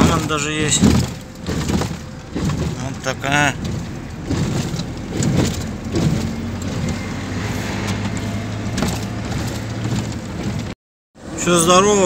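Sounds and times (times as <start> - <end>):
knocks and rattles: 0.0 - 10.8
road noise: 0.0 - 12.0
van engine drone: 0.0 - 12.0.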